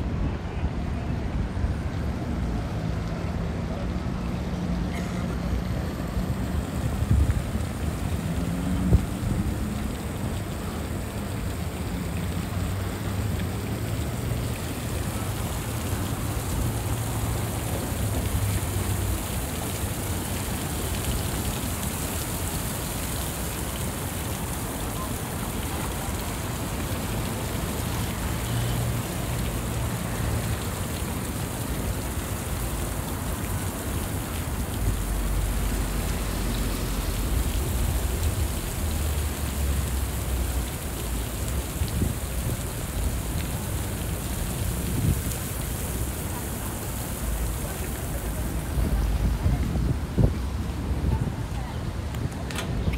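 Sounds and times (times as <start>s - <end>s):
continuous street hiss: 0.0s - 52.9s
low traffic rumble: 0.0s - 52.9s.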